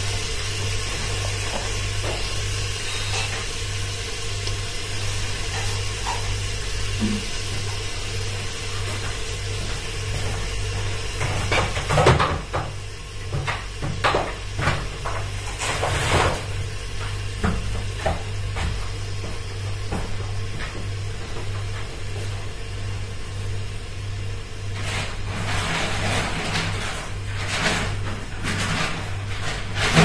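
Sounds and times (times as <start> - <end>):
kitchen knocks and clatters: 11.2 - 22.0, 24.8 - 30.0.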